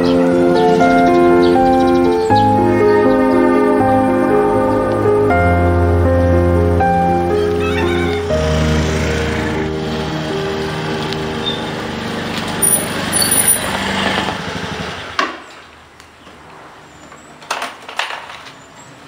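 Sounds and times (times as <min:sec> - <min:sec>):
scooter engine running: 0:08.2 - 0:15.2.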